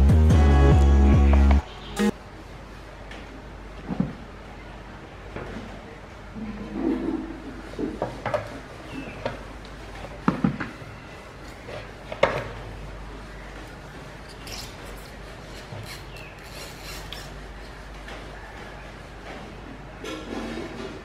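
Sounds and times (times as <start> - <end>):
light rubbing and rustling: 13.6 - 21.0.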